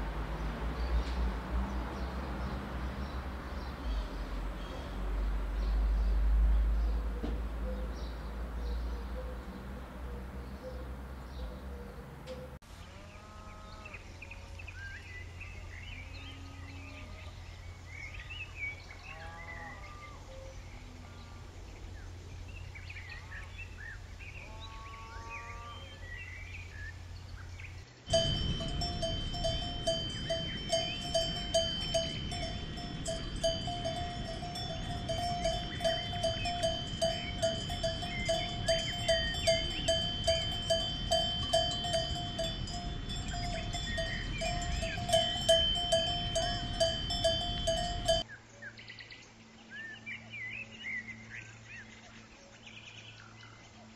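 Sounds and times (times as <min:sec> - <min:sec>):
birds chirping: 0:00.0 - 0:53.9
low steady hum: 0:25.5 - 0:48.3
cowbell clanking: 0:28.1 - 0:48.2.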